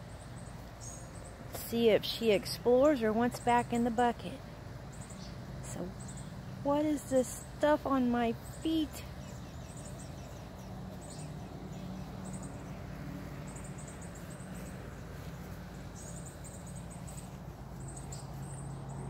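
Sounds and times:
steady low hum: 0.0s - 19.0s
high rapid chirp trills: 4.9s - 18.7s.

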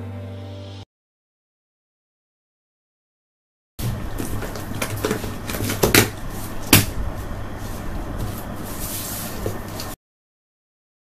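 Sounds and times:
steady low hum: 3.8s - 10.0s.

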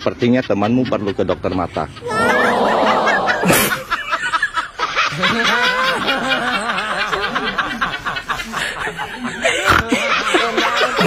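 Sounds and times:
person laughing: 2.0s - 4.5s, 5.1s - 11.0s.

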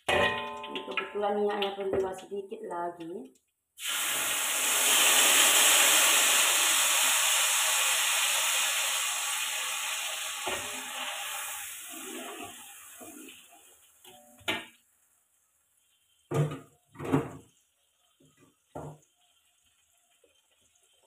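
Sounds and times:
paste sizzling in hot oil: 3.8s - 21.0s.

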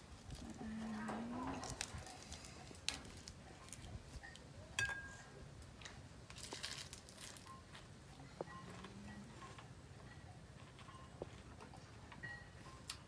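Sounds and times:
lettuce leaves crinkling: 0.1s - 4.2s, 6.3s - 7.8s.

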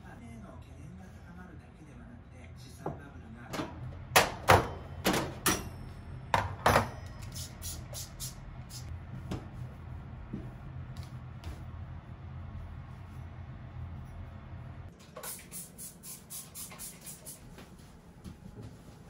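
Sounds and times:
spray bottle squirting: 15.2s - 17.4s.

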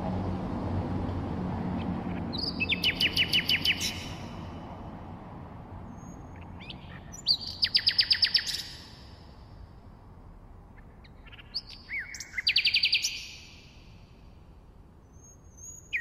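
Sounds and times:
nightingale singing: 2.2s - 4.4s, 5.9s - 9.2s, 10.8s - 14.1s, 15.0s - 16.0s.

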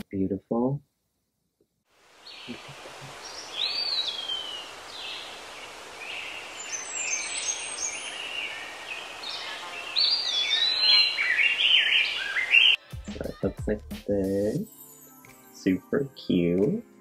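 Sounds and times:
steady outdoor hiss: 1.9s - 14.7s
songbirds chirping and whistling: 2.2s - 12.8s.

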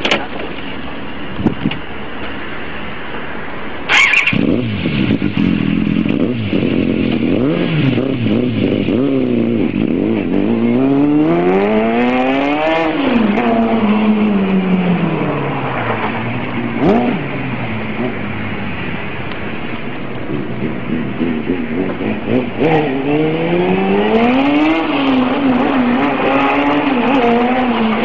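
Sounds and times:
motorcycle engine revving: 3.9s - 28.0s.

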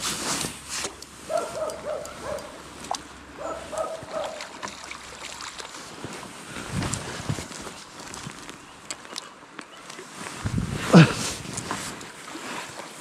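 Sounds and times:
dog barking: 1.3s - 2.6s, 3.4s - 4.4s.

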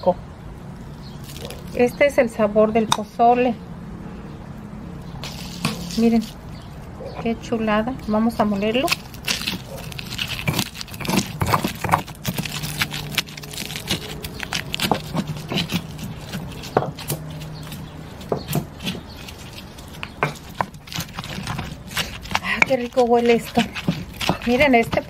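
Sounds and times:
stone pestle grinding in mortar: 5.2s - 6.6s, 8.1s - 25.0s.

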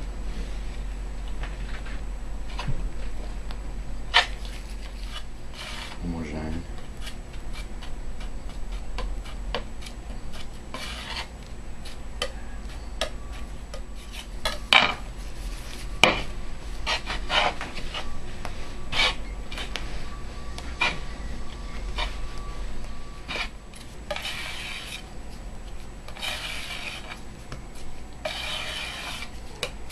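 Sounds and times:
glass muller rubbing: 4.2s - 6.0s, 7.0s - 25.1s, 26.1s - 27.2s, 28.2s - 29.9s
palette knife scraping on glass: 4.2s - 6.0s, 8.7s - 18.2s, 18.9s - 19.7s, 23.2s - 25.1s, 26.1s - 27.2s, 28.2s - 29.7s.

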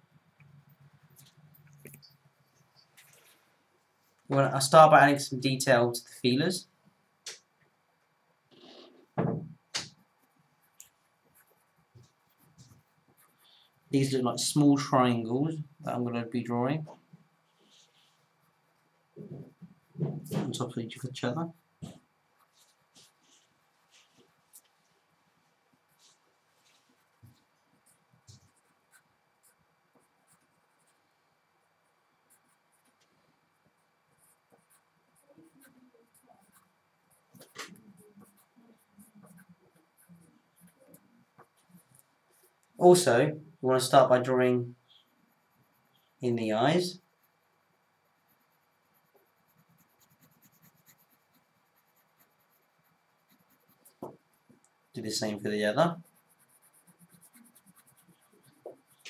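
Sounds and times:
soft thud: 9.2s - 9.9s
pencil scratching on paper: 11.2s - 14.1s, 25.8s - 31.0s, 31.7s - 42.6s, 43.8s - 59.0s
pencil tap: 54.0s - 54.2s.

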